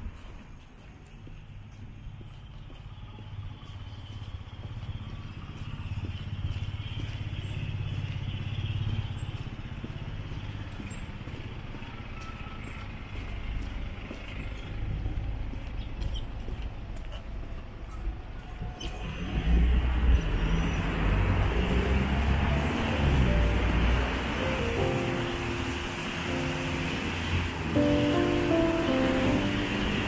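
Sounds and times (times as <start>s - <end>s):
vehicle engine passing: 18.9s - 30.0s.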